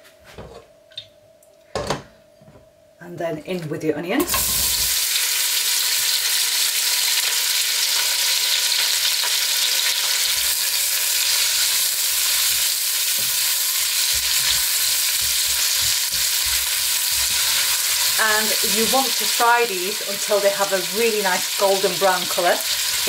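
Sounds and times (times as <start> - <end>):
onions sizzling in oil: 4.2 - 23.0
spatula knocking and scraping: 12.4 - 18.2.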